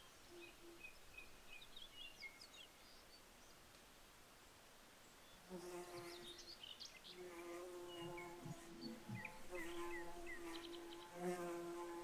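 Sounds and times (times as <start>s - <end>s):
flying insect buzzing: 7.2s - 12.0s.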